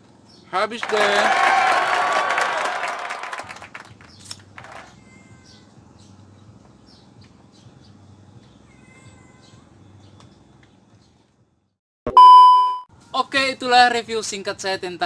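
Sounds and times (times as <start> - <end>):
faint wavering animal cries: 4.8 - 5.8, 8.6 - 9.7.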